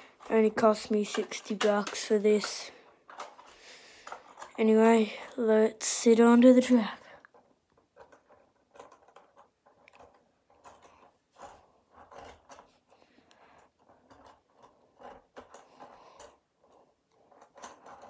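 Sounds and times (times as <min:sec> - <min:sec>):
plastic toy train clicks: 0:00.0 - 0:18.0.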